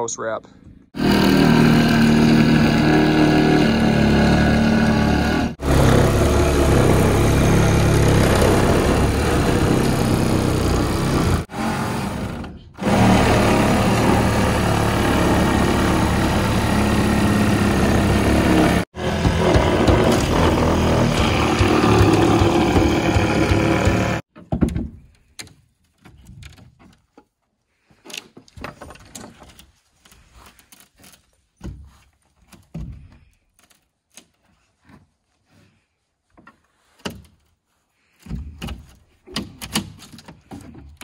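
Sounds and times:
wooden thunks and knocks: 19.0 - 27.3, 31.6 - 33.3, 38.2 - 41.0.

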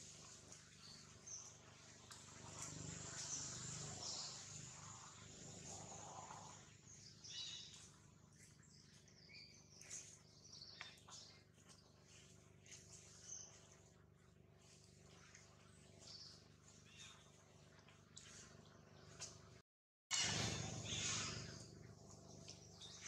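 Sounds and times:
bird and insect chirps: 0.8 - 8.0, 16.0 - 17.3, 20.1 - 21.8.

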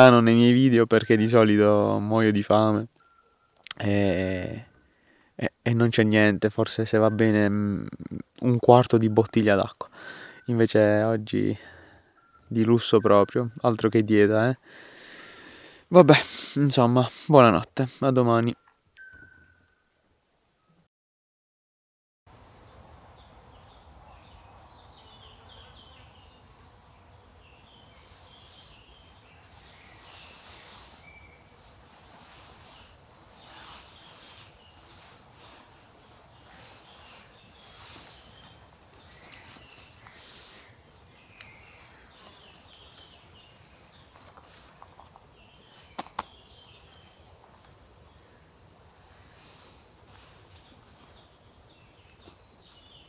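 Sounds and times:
woodland ambience: 0.0 - 20.8, 22.3 - 53.0
short high chirps: 18.6 - 19.8
small birds chirping: 22.6 - 53.0.

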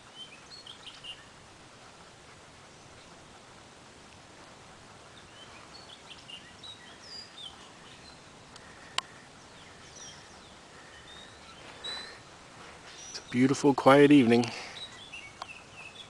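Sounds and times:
faint bird chirps and whistles: 0.0 - 1.3, 5.2 - 16.0
background hiss: 0.0 - 16.0.

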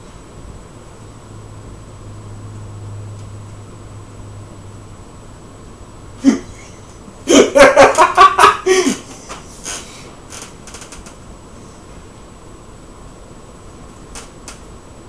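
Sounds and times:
man laughing: 6.2 - 9.3.

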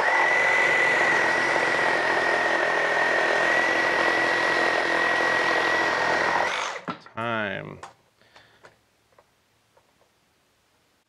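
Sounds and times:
reciprocating saw cutting wood: 0.0 - 6.9.

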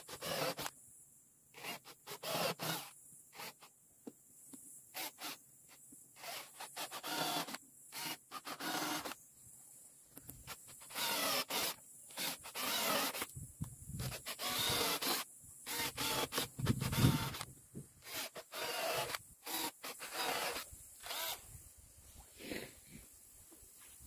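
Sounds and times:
cordless drill bursts: 0.0 - 0.7, 1.6 - 3.7, 4.9 - 5.4, 6.2 - 9.2, 10.4 - 13.3, 14.0 - 21.6.

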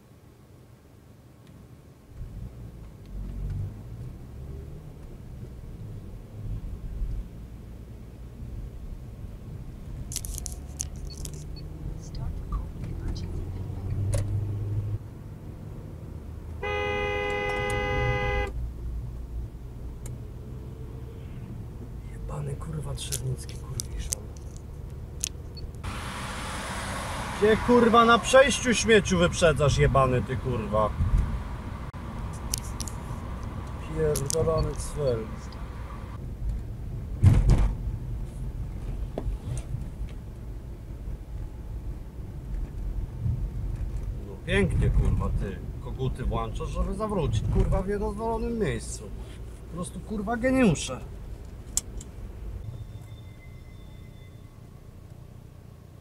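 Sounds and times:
car engine and tyres hum: 0.0 - 56.0
car horn blast: 16.6 - 18.6
loud burst of noise: 25.8 - 28.3.

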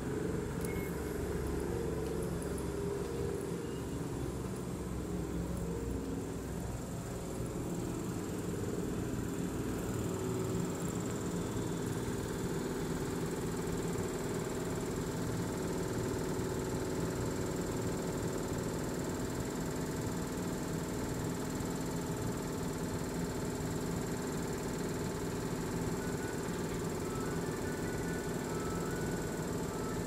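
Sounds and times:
faint high whine: 0.0 - 14.9, 25.1 - 30.0.

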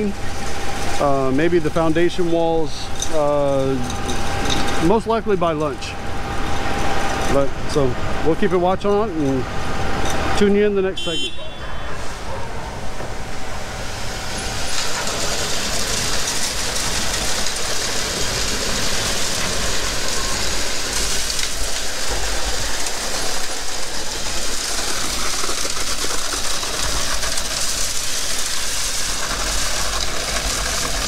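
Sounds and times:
concrete pump truck running: 0.0 - 31.0
wet concrete pushed through hose: 14.1 - 31.0.

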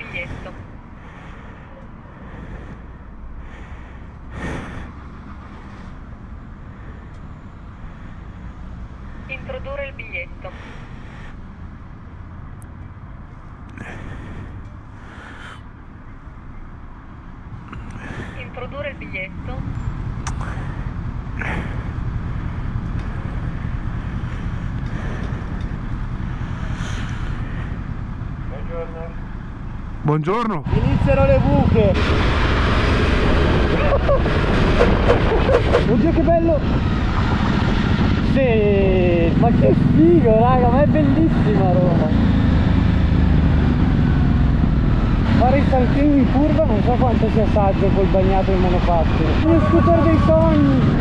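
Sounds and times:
motorcycle engine idling: 19.7 - 30.0.

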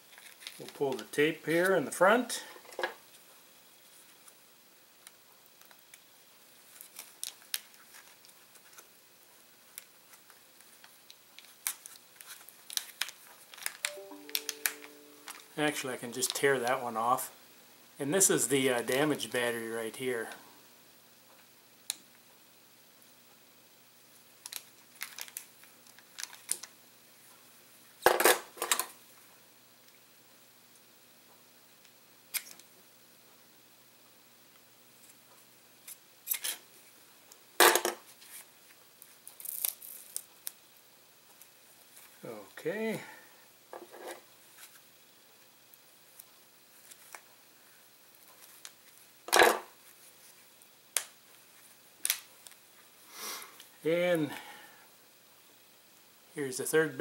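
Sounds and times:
packaging crinkling: 0.0 - 1.1, 6.7 - 8.9, 9.7 - 14.0, 24.4 - 26.7, 39.2 - 40.6
light clicks and crinkles: 0.0 - 1.8, 5.0 - 16.4, 24.4 - 27.4, 35.0 - 42.2, 45.7 - 47.4, 48.1 - 49.1.

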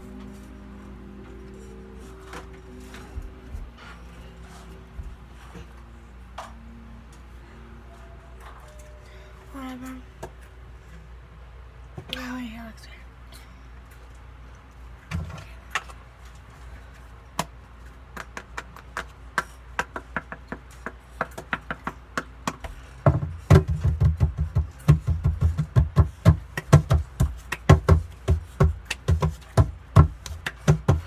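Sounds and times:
hands tapping and knocking objects: 17.4 - 31.0
dull thumps: 20.9 - 31.0.

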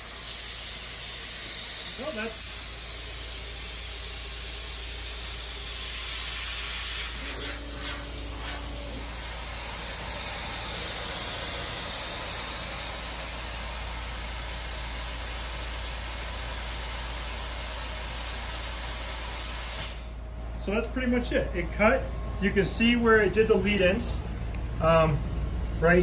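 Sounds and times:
low hum: 0.0 - 14.4
air hissing: 0.0 - 20.2.

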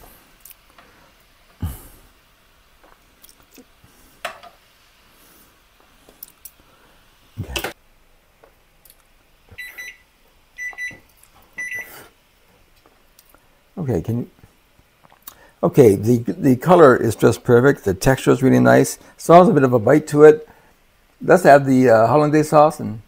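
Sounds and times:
appliance beeps: 9.5 - 11.0, 11.6 - 12.0.

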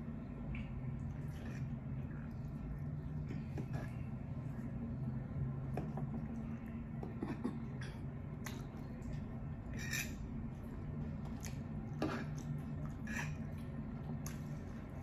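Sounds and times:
steady low hum: 0.0 - 15.0
fork scraping and clinking on plate: 9.7 - 10.2.

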